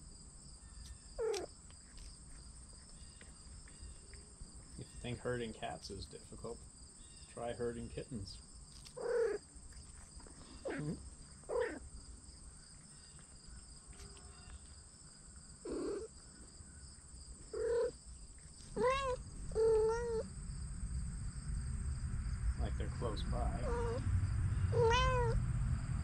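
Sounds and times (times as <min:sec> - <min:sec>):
cats meowing: 0:01.2 - 0:01.5, 0:08.9 - 0:11.9, 0:15.6 - 0:16.1, 0:17.4 - 0:18.0, 0:18.6 - 0:20.3, 0:23.3 - 0:24.0, 0:24.7 - 0:25.4.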